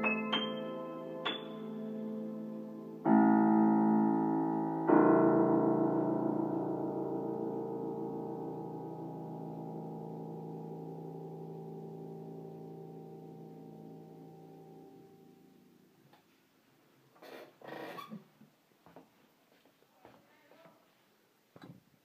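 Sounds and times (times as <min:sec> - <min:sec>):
piano chords: 0:00.0 - 0:16.0.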